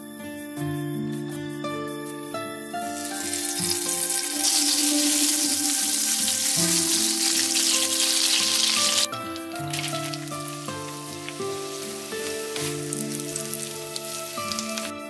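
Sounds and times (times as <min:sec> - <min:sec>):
butter sizzling in hot oil: 0:03.0 - 0:15.0.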